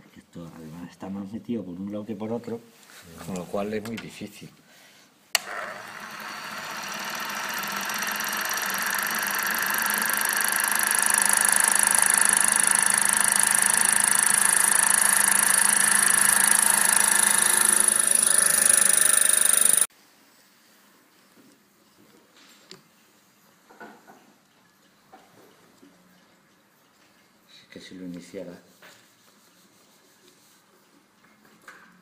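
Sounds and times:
lathe motor high whine: 0:05.4 - 0:19.9.

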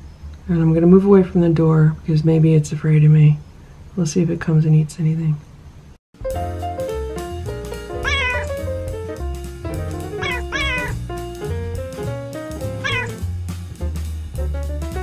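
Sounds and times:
background music: 0:06.2 - 0:15.0
cat meowing: 0:08.0 - 0:08.6, 0:10.2 - 0:11.0, 0:12.8 - 0:13.2.

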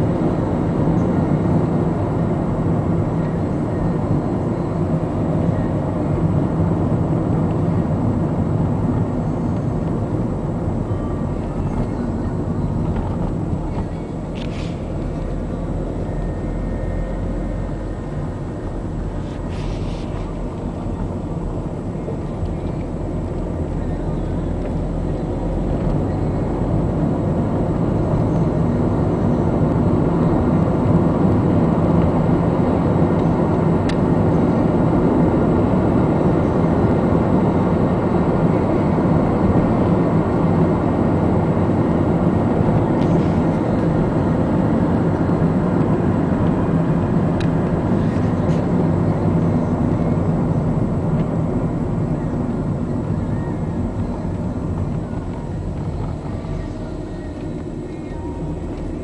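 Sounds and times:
car cabin road and engine rumble: 0:00.0 - 0:59.0.

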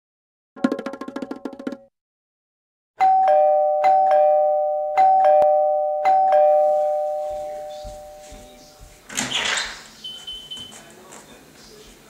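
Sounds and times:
two-tone doorbell chime: 0:03.0 - 0:08.8.

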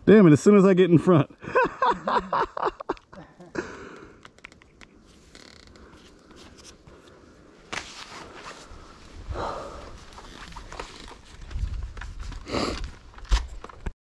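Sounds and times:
faint clicks: 0:03.8 - 0:05.0
rustling: 0:04.9 - 0:13.9.

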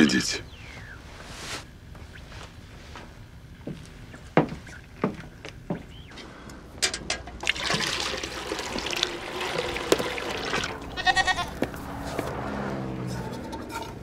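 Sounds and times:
milk pouring into metal pail: 0:07.4 - 0:10.9.

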